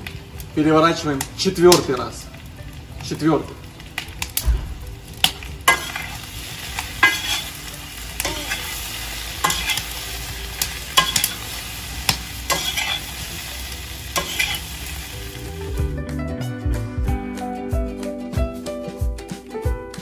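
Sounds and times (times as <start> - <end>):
potatoes sizzling in oil: 0.0 - 15.8.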